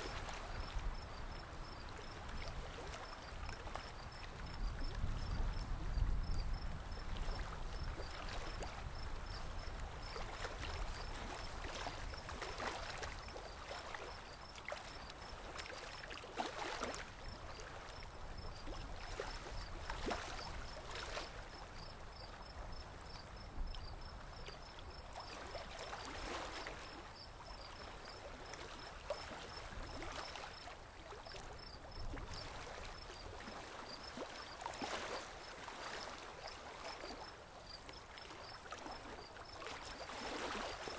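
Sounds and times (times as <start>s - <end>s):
wind rumble on microphone: 0.0s - 13.4s, 17.1s - 28.2s, 31.6s - 33.4s.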